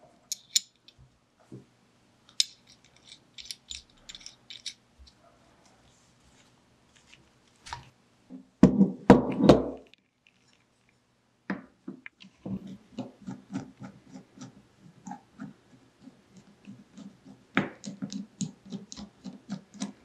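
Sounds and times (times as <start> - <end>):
knocks and clatter of handled parts: 0.3 - 1.0, 2.3 - 5.2.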